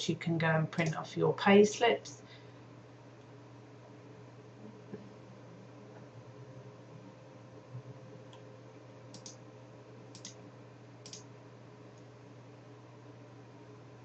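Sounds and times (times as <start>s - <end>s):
steady low hum: 0.0s - 14.0s
computer mouse clicks: 9.1s - 9.4s, 10.1s - 10.4s, 11.0s - 11.3s.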